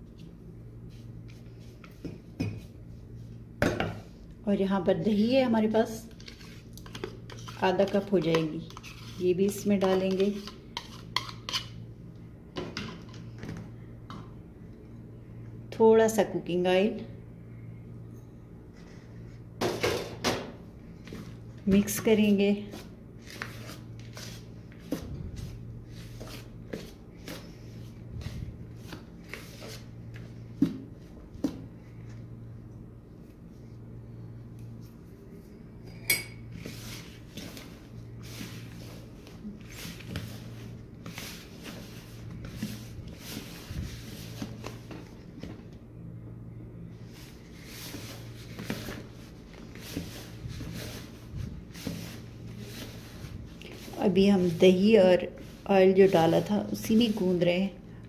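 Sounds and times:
steady low hum: 0.0s - 58.0s
hand rubbing dough in bowl: 5.0s - 11.6s, 47.0s - 57.8s
spoon scraping plastic bowl: 6.2s - 11.8s.

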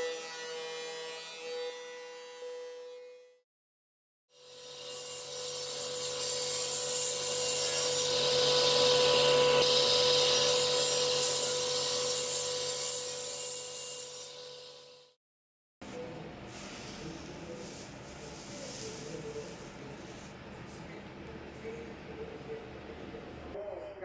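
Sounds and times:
panel saw humming: 4.4s - 15.1s
saw cutting wood board: 4.4s - 15.1s.

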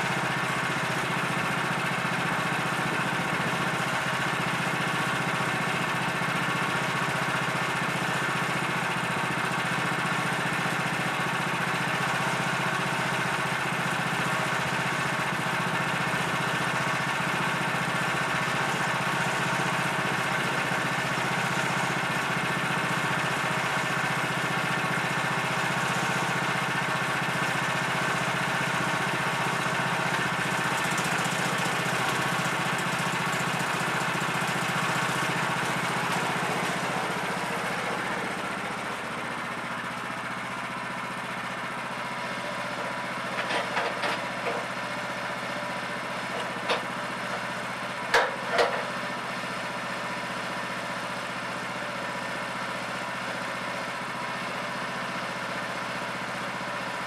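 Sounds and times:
gas engine running: 0.0s - 57.0s.

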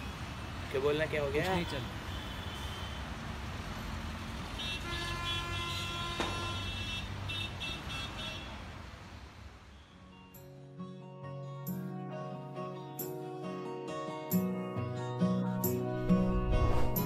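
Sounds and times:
street traffic noise: 0.0s - 10.5s
vehicle horns honking: 4.6s - 8.6s.

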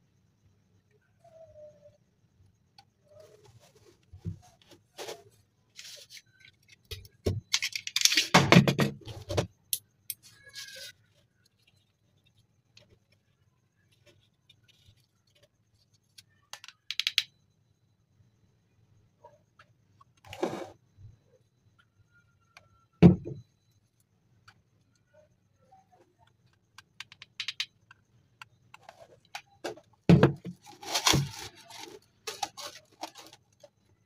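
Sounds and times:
cardboard scraping on table: 20.3s - 20.8s, 30.4s - 33.4s.

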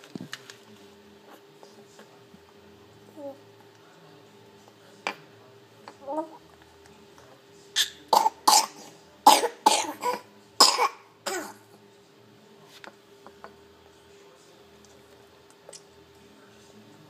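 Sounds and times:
person coughing: 8.2s - 11.6s.

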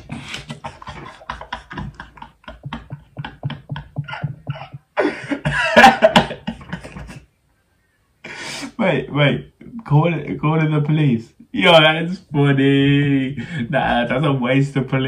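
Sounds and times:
man stifling laughter: 0.0s - 7.3s.

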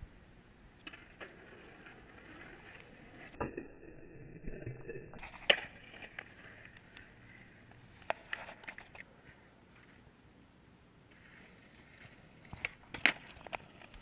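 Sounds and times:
skateboard wheels rolling on pavement: 0.7s - 3.4s, 5.2s - 10.1s, 11.1s - 14.0s
skateboard clacking on ground: 0.8s - 3.4s, 5.2s - 9.1s, 11.1s - 14.0s.

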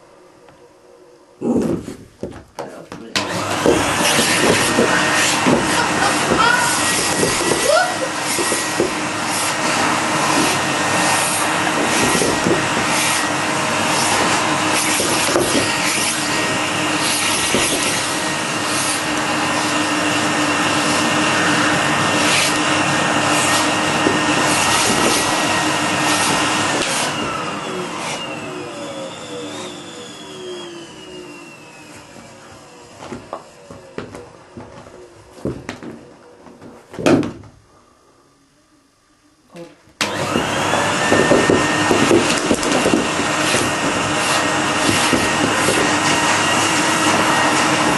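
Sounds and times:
knocks and bumps: 1.6s - 7.7s, 33.0s - 37.6s
vacuum cleaner motor whine: 3.1s - 36.5s, 40.0s - 47.9s.

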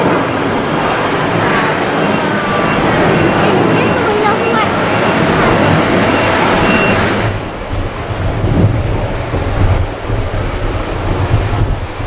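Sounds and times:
distant jet rumble: 0.0s - 12.0s
jet engine hiss and whine: 0.0s - 12.0s
wind buffeting microphone: 0.0s - 12.0s.

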